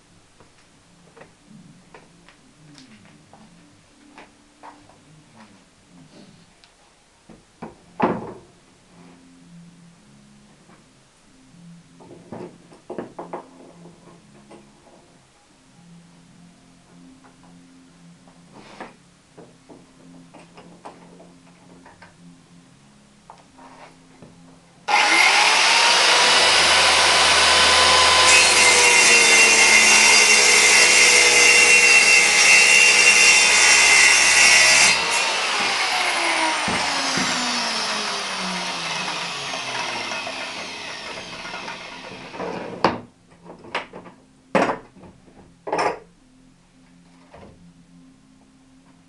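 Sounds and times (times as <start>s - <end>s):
saw motor winding down: 24.9s - 42.3s
circular saw cutting board: 24.9s - 42.7s.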